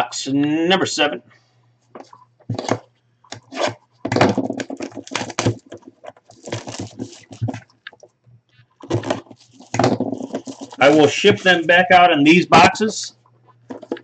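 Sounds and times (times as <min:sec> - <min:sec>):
plastic shrink wrap crinkling: 0:02.5 - 0:11.5.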